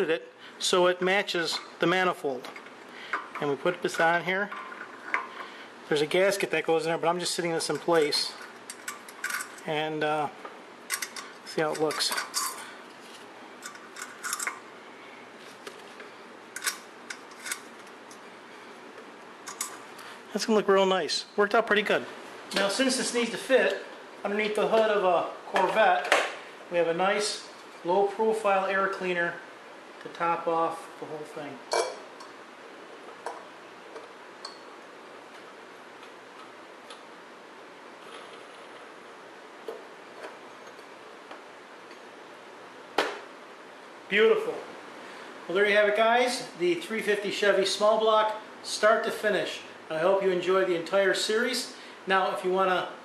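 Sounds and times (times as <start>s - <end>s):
faint steady hiss: 0.0s - 53.0s
small metal clicks: 13.6s - 14.6s, 16.6s - 18.2s.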